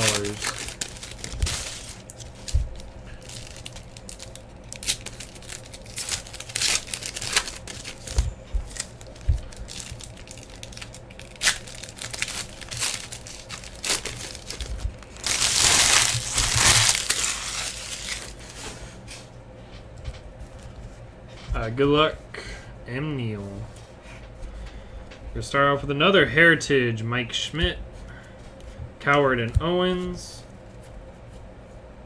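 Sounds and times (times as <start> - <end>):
foil wrappers crinkling and tearing: 0.0 - 18.8.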